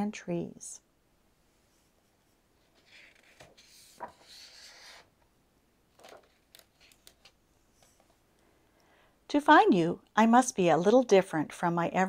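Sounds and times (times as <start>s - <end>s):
book page swishing: 2.6s - 5.1s.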